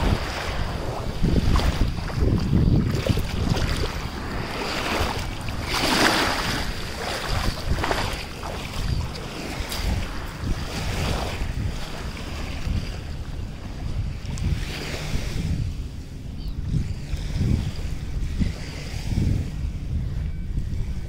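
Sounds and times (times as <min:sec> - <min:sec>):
small waves washing on sand: 0:00.0 - 0:15.8
wind buffeting microphone: 0:00.0 - 0:21.0.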